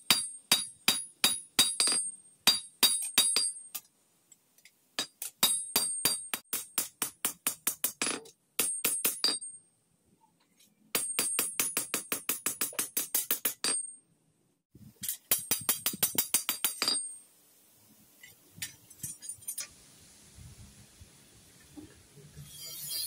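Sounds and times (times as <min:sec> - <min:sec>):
hammer striking steel on anvil: 0:00.0 - 0:03.9, 0:05.0 - 0:09.6, 0:11.0 - 0:14.0, 0:15.0 - 0:17.2.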